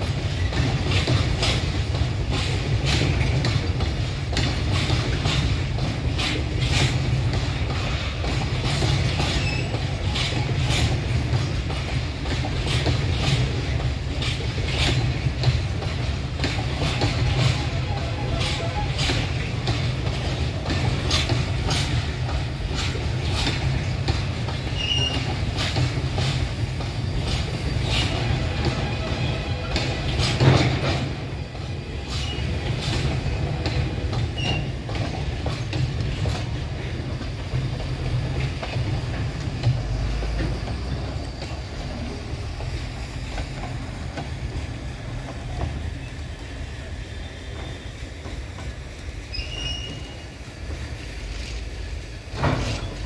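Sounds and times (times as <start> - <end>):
train low rumble: 0.0 - 53.0
high wheel squeals: 24.7 - 25.5, 49.3 - 50.4.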